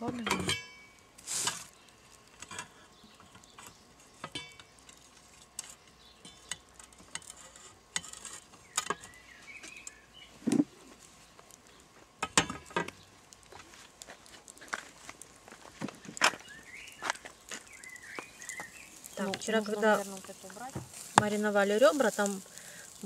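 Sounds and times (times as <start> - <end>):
wire grill basket clinking: 0.2 - 9.1.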